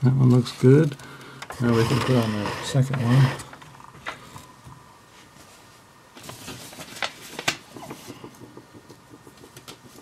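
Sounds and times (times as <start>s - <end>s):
small clicks and taps: 7.4s - 10.0s.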